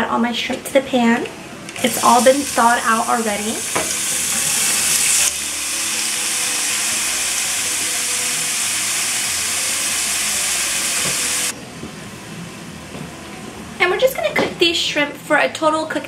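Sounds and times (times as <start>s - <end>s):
shrimp sizzling in oil: 1.8s - 11.5s.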